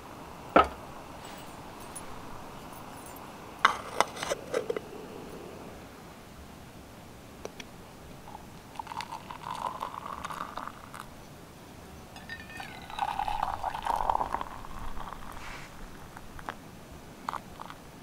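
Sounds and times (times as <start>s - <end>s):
tea pouring into ceramic mug: 8.2s - 11.1s, 12.2s - 15.4s
tea pouring into steel mug: 8.2s - 11.1s, 12.2s - 15.4s.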